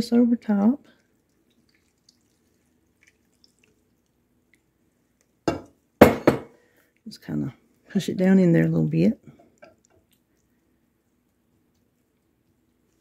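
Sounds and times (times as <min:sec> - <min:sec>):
liquid pouring into a dish: 0:00.9 - 0:05.8
loud knock: 0:05.5 - 0:06.5.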